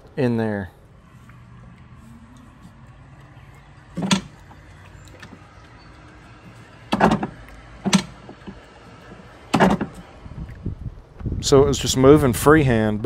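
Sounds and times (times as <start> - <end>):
reverse gate clunking: 1.0 - 10.3.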